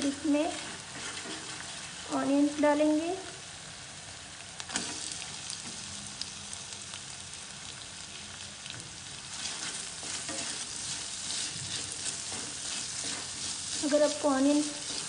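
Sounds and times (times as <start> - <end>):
spatula scraping a wok: 0.0 - 2.1, 9.3 - 15.0
onions sizzling in hot oil: 0.0 - 15.0.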